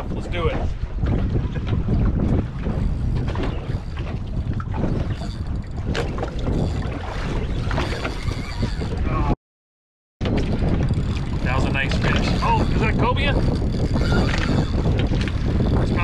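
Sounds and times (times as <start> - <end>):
wind rushing over microphone: 0.0 - 9.4, 10.2 - 16.0.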